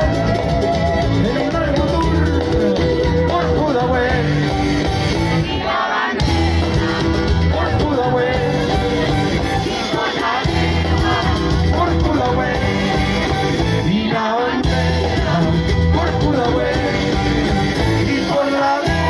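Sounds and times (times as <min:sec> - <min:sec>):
person singing: 0:00.0 - 0:04.7, 0:05.6 - 0:19.0
steady bass line: 0:00.0 - 0:05.6, 0:06.2 - 0:19.0
drums: 0:00.0 - 0:19.0
guitars: 0:00.0 - 0:19.0.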